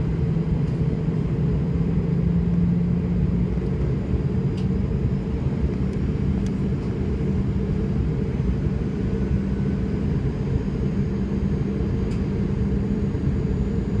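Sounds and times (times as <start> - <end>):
airliner cabin engine rumble: 0.0 - 14.0.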